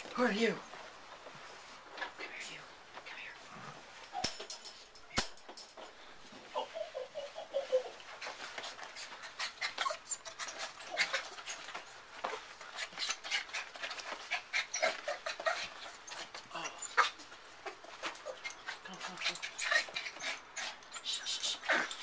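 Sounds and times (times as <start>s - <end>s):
puppy panting: 6.5s - 22.0s.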